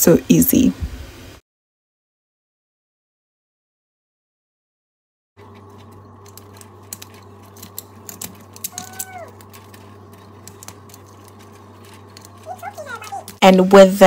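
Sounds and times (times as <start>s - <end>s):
steady low hum: 5.4s - 14.0s.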